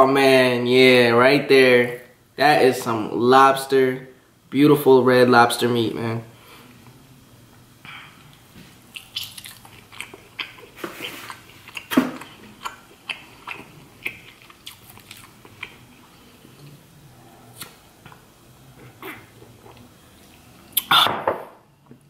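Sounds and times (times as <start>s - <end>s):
mouth chewing with wet clicks: 8.3s - 15.8s, 19.0s - 21.0s.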